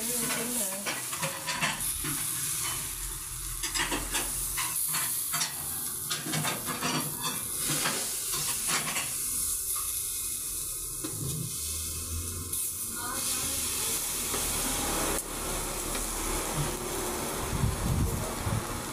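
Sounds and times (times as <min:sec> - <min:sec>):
vegetables sizzling on a griddle: 0:00.0 - 0:18.9.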